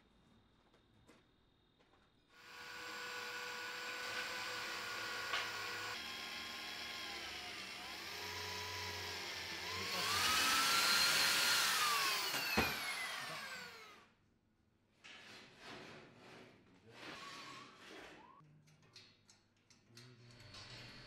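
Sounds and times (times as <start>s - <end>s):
electric drill boring into steel: 2.4s - 14.0s
drill click: 2.7s - 14.0s.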